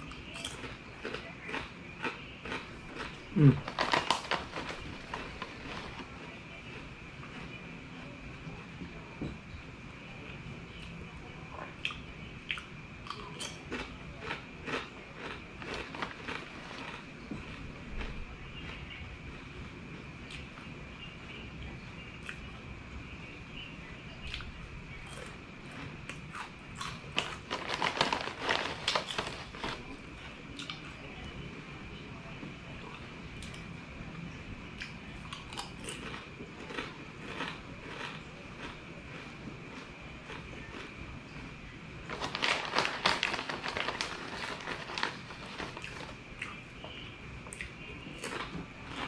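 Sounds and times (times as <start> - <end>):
plastic snack bag crinkling: 0.0 - 7.4, 13.7 - 18.1, 26.8 - 30.3, 35.6 - 40.9, 42.0 - 46.2, 48.2 - 49.0
crunching chips: 0.0 - 7.5, 11.9 - 19.5, 24.3 - 30.9, 34.8 - 46.8, 47.5 - 49.0
faint high whine: 0.0 - 49.0.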